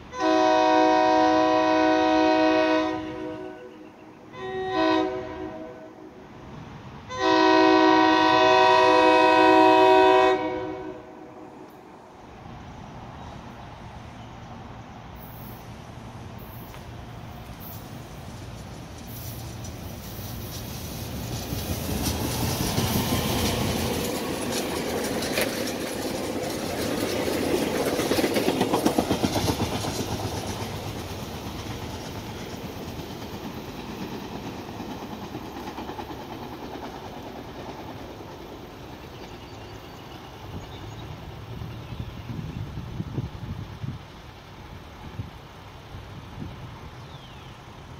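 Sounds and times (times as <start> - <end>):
electric train passing: 0.0 - 47.9
train wheels clattering: 16.5 - 39.9.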